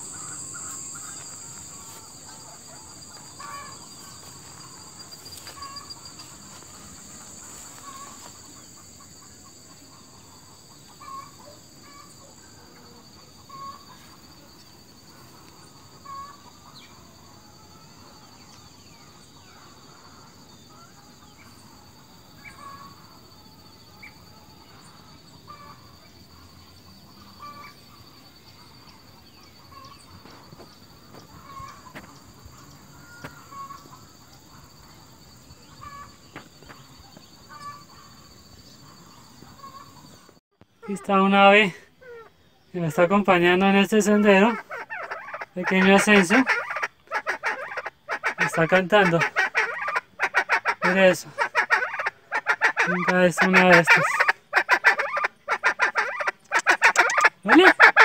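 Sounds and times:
insects droning: 0.0s - 58.0s
bird giving short calls: 44.4s - 58.0s.

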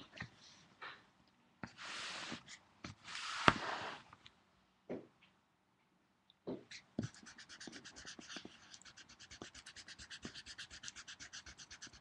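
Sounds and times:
pencil scribbling on paper: 7.0s - 12.0s.

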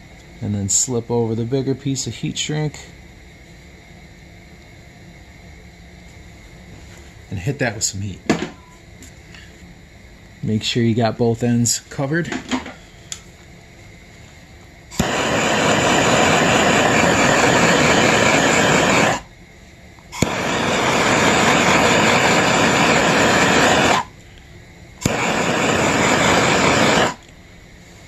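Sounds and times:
gas torch igniter click: 14.9s - 19.2s, 20.2s - 24.1s, 25.0s - 27.2s
gas torch flame hissing: 14.9s - 19.3s, 20.0s - 24.4s, 25.0s - 27.3s.

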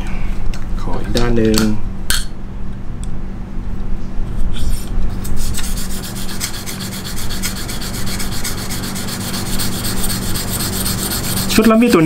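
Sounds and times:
diamond hone rasping on knife edge: 5.4s - 12.0s.

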